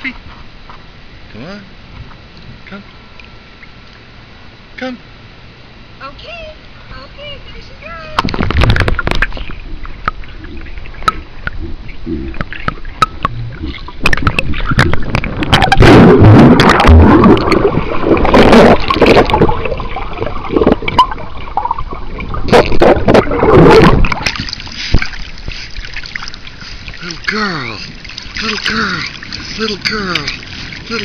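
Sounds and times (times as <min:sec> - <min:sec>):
water gurgling and sloshing: 0:06.6 - 0:31.0
dog paddling splashes: 0:13.6 - 0:31.0.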